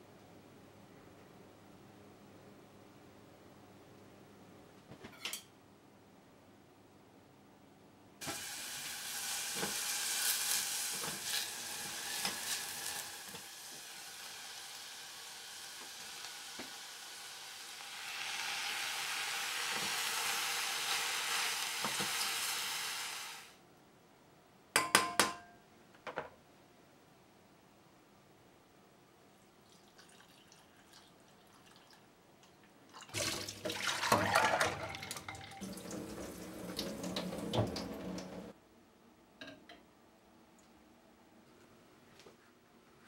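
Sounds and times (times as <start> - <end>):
onion and mushrooms sizzling in oil: 8.2 - 23.6
metal utensils clinking: 34.2 - 35.7.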